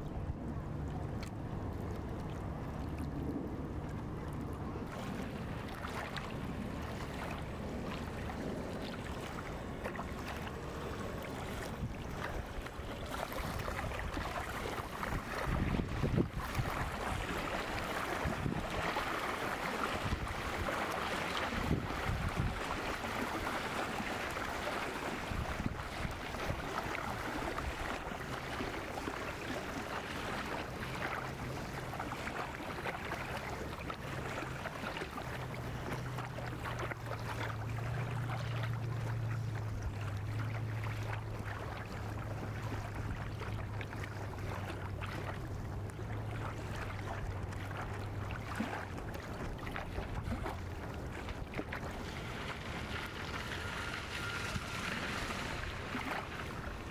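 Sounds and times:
wind on microphone: 0.0 - 30.5
low motor drone: 51.4 - 56.9.

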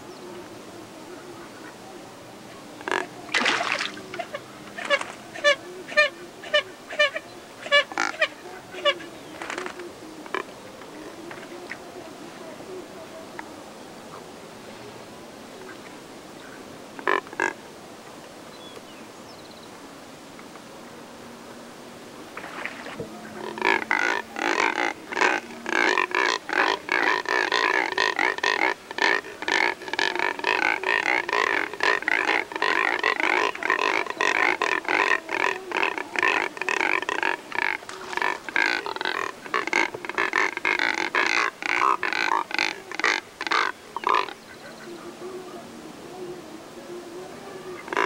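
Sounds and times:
cormorants harsh grunting calls: 23.1 - 48.0.

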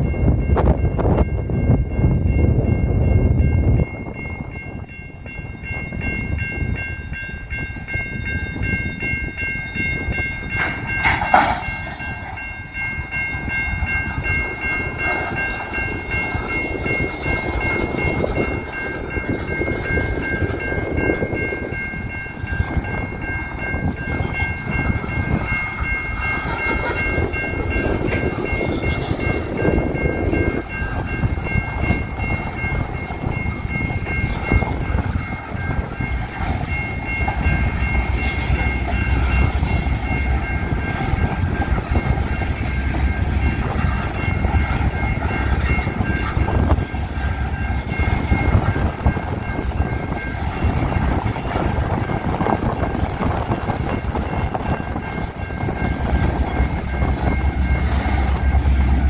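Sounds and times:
crossing bell ringing: 0.0 - 59.0
train wheels rumbling and clacking: 0.0 - 59.0
metallic screech from train cars: 57.7 - 58.4.

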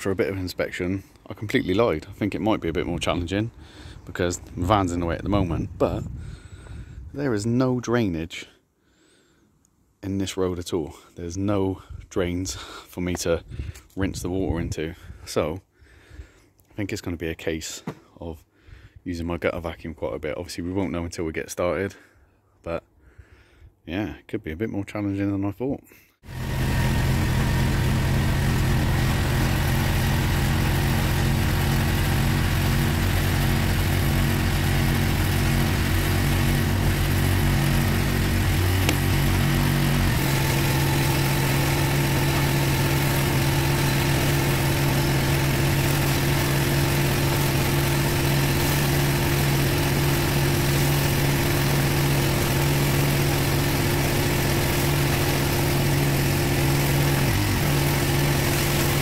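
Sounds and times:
pressure washer engine running: 26.3 - 59.0.

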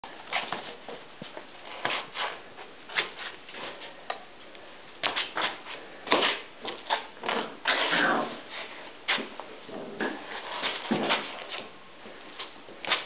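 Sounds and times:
puppy scuffing and scratching slipper: 0.3 - 3.8, 5.0 - 11.7.

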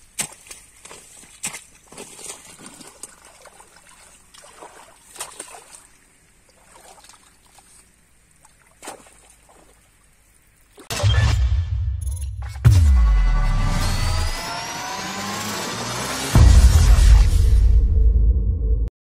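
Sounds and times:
water trickling and sloshing: 0.0 - 10.9
loud music with deep bass: 12.6 - 14.6, 16.2 - 18.3.

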